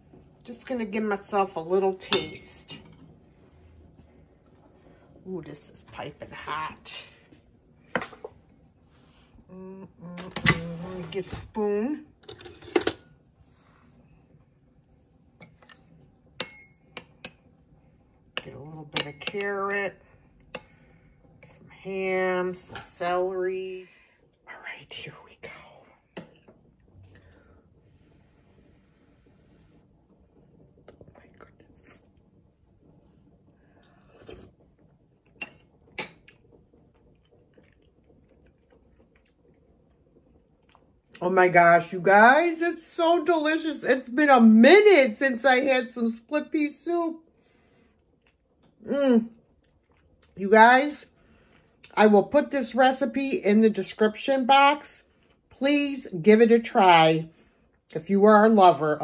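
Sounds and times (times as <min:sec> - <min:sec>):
metal spoon clinking on bowl: 0:16.4 - 0:17.4
quiet chewing and mouth noises: 0:28.7 - 0:41.2, 0:47.3 - 0:50.4, 0:51.1 - 0:52.0, 0:55.1 - 0:55.5
soft slurp: 0:30.8 - 0:32.2, 0:33.8 - 0:34.7.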